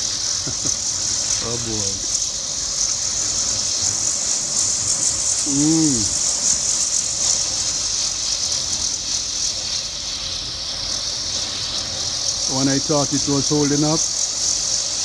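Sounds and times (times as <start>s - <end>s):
man humming: 5.5s - 6.2s.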